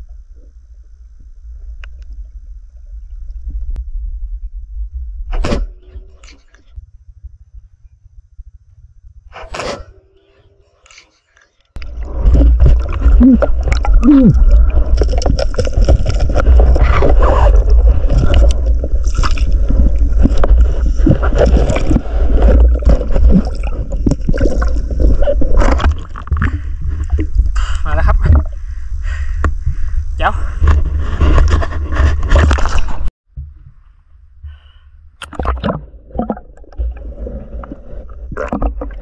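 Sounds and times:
underwater churning rumble: 0:00.0 - 0:09.4, 0:11.8 - 0:39.0
bubbles gurgling: 0:11.8 - 0:27.6, 0:35.2 - 0:39.0.

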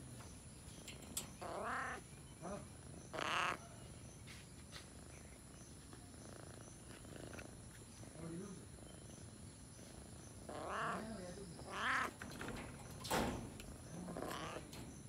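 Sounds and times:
cat meowing: 0:01.4 - 0:02.0, 0:03.2 - 0:03.7, 0:10.5 - 0:12.2, 0:14.1 - 0:14.6.

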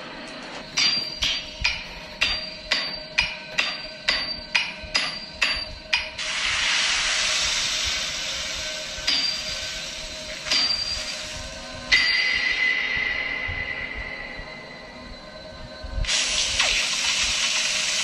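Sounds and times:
hammer striking metal on anvil: 0:00.7 - 0:06.2, 0:09.0 - 0:09.6, 0:10.4 - 0:11.2
steady rushing hiss: 0:06.2 - 0:11.9, 0:16.0 - 0:18.0.

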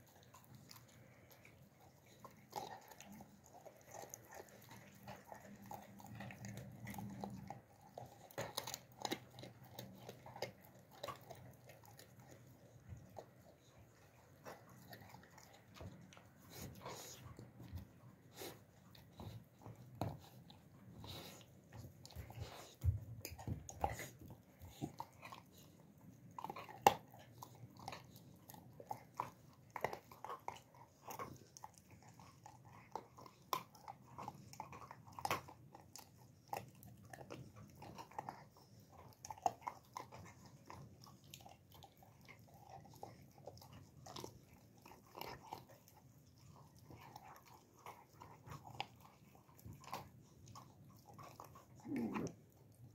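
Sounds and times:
puppy chewing raw meat: 0:00.0 - 0:52.9.

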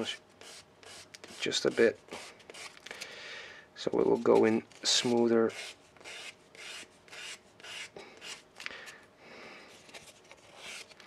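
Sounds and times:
sanding stick rasping on wood: 0:04.2 - 0:08.4.

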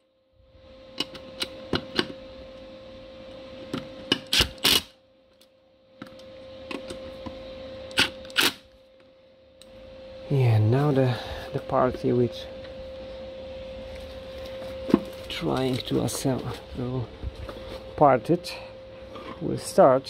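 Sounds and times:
screwdriver mechanical whirr: 0:03.6 - 0:07.0, 0:07.9 - 0:08.7.

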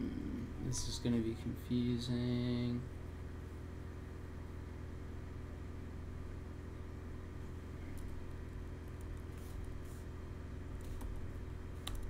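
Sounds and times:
low equipment hum: 0:00.0 - 0:12.0
keyboard keystrokes clicking: 0:11.8 - 0:12.0.

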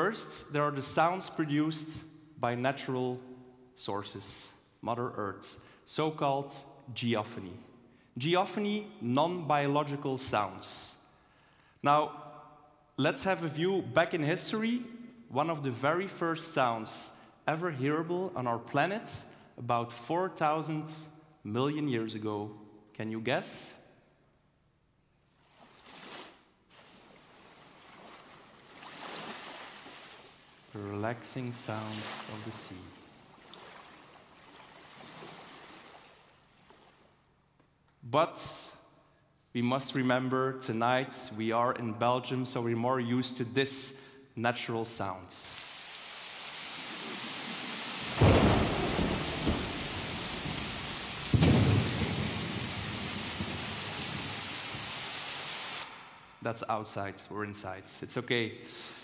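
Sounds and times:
sea waves washing in: 0:25.7 - 0:30.5, 0:46.7 - 0:56.2
steady rain: 0:45.6 - 0:56.1
thunder clap rumbling: 0:48.1 - 0:54.9.

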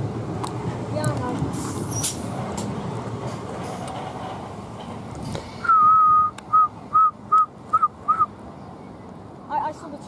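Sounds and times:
electric train rolling away: 0:00.0 - 0:06.3
loud whistled note: 0:05.6 - 0:08.3.

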